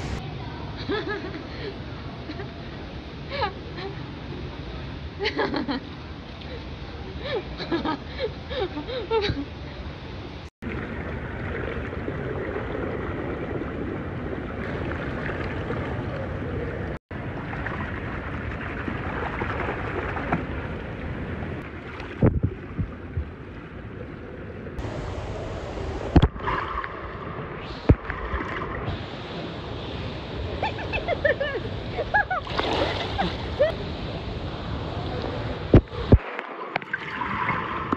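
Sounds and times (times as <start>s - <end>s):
pool water sloshing and lapping: 10.6s - 30.8s, 31.6s - 37.9s
sharp splashes: 17.3s - 20.9s, 32.4s - 33.7s.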